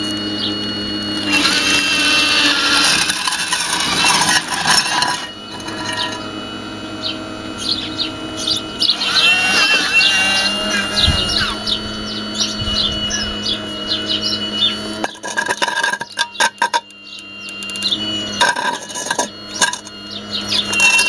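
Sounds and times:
hydraulic pump hum and whine: 0.0 - 21.0
songbirds chirping: 6.9 - 15.0, 15.9 - 18.4, 19.4 - 20.7.

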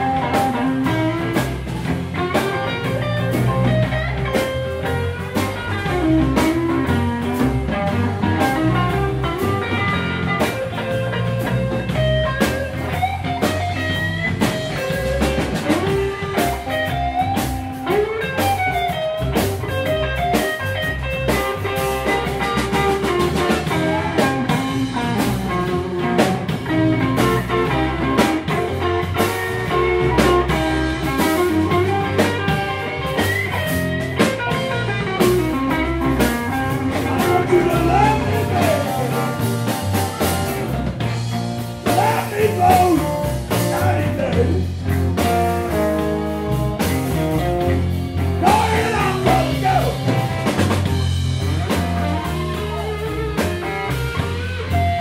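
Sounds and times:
bass guitar: 0.0 - 55.0
drum kit: 0.0 - 55.0
electric guitar lead: 0.0 - 55.0.

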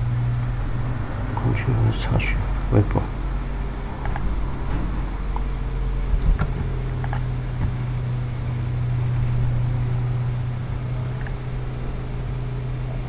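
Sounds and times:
steady low hum: 0.0 - 13.0
keyboard and mouse clicks: 4.0 - 4.3, 6.2 - 7.7.

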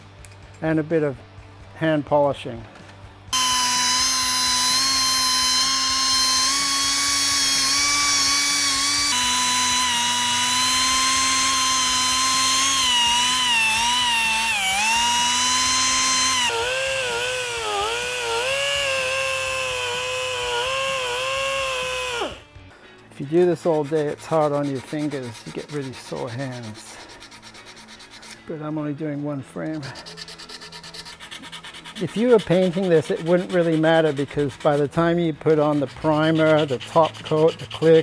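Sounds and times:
air belt sander whining: 3.4 - 22.5.

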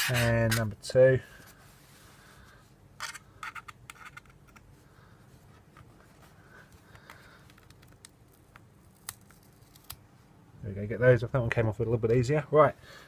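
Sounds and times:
screwdriver scraping on metal: 0.0 - 0.7.

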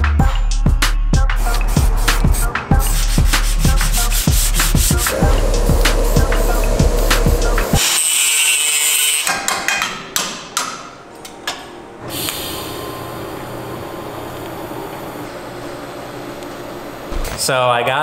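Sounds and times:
aerosol spray can hissing: 1.4 - 8.0
arc welding hiss and hum: 2.9 - 9.1.

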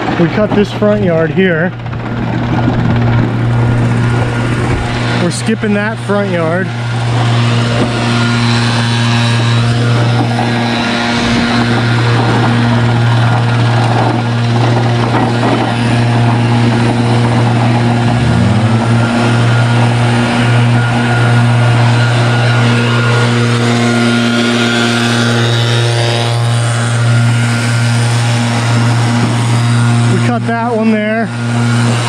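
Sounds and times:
lawn mower engine running: 0.0 - 32.0.

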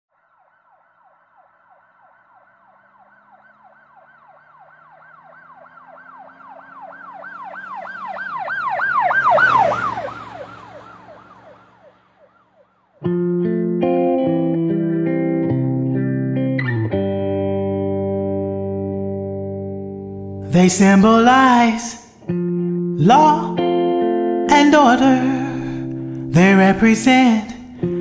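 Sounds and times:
emergency siren wailing: 0.1 - 26.6
vehicle engine passing: 0.2 - 15.4.

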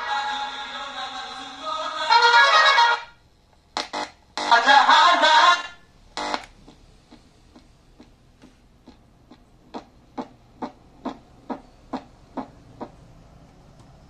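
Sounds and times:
steady ticking through speaker: 6.3 - 13.0.

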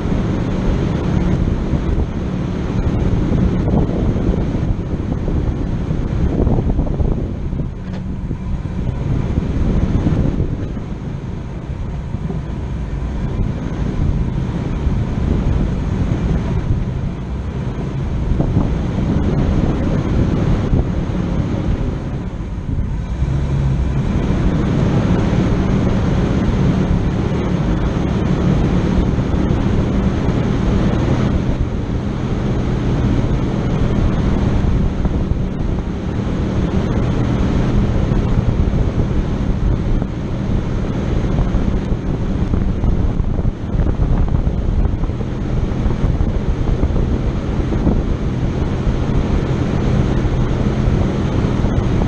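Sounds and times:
engine running: 0.0 - 52.0
wind noise on microphone: 0.0 - 52.0.

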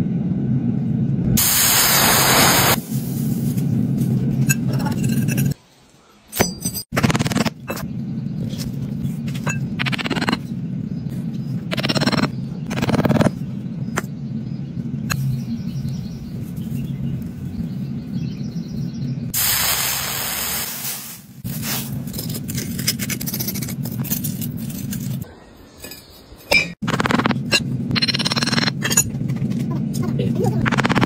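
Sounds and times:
steady low hum: 0.0 - 5.6, 6.6 - 20.5, 21.2 - 31.0
molten metal hissing: 1.4 - 3.7, 19.3 - 22.0.

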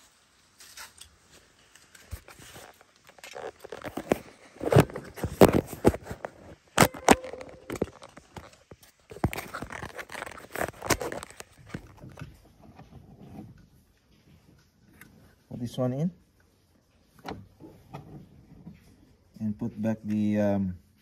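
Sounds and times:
hands handling plastic trim: 1.7 - 12.3.

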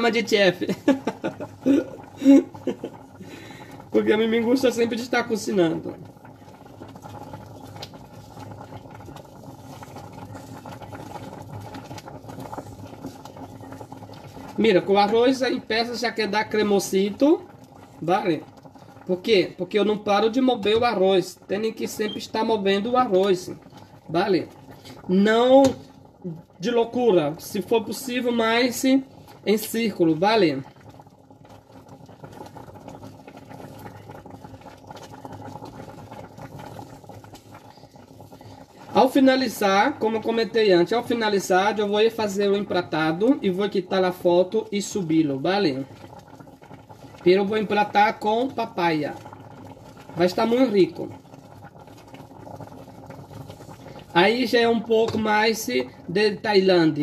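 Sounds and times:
pudding bubbling: 0.0 - 57.0
wooden spoon stirring: 3.9 - 19.2, 31.5 - 40.4, 42.5 - 55.9.

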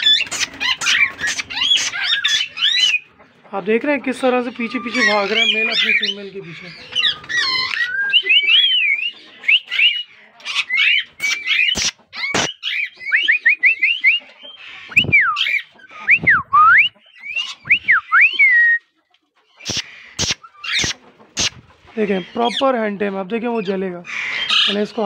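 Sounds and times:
parakeets chirping and whistling: 0.0 - 3.5, 4.3 - 22.7, 23.4 - 25.0.

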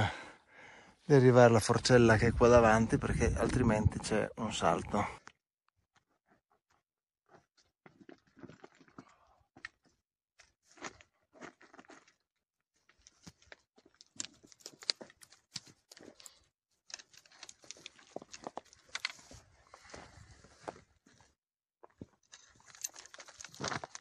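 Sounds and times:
footsteps on gravel: 17.5 - 20.9, 21.8 - 24.0.

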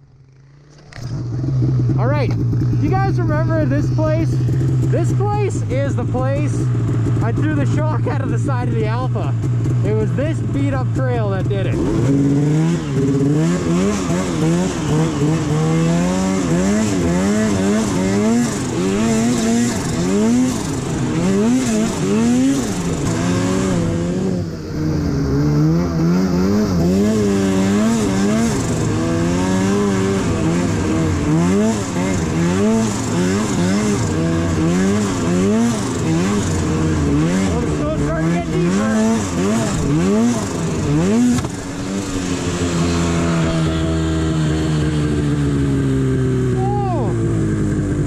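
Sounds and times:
snowmobile engine revving: 0.0 - 48.0.

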